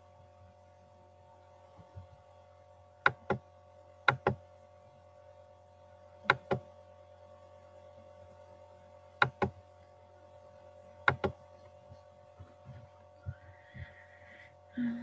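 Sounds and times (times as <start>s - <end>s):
steady electrical hum: 0.0s - 15.0s
sharp clicks: 11.0s - 11.4s.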